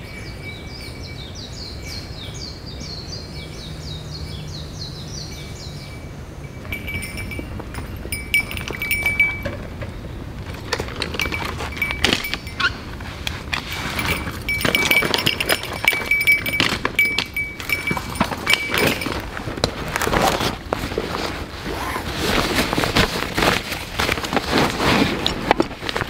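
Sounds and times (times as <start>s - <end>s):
small clicks and clinks: 6.6s - 20.6s
fabric rustling: 10.4s - 26.0s.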